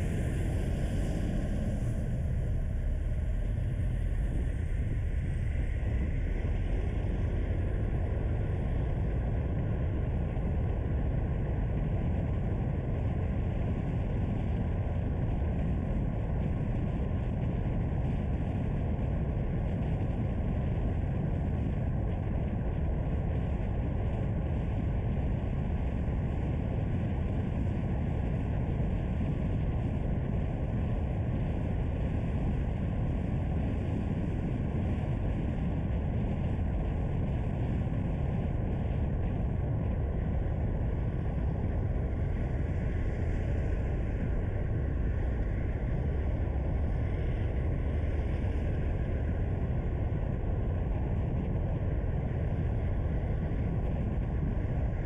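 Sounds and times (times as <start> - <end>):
car engine rumble: 0.0 - 8.9.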